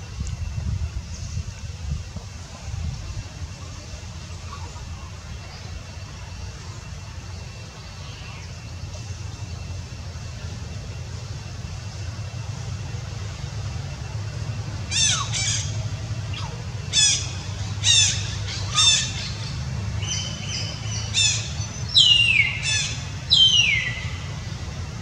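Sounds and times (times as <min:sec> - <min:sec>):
steady low hum: 0:00.0 - 0:25.0
baby monkey squealing: 0:14.9 - 0:19.3.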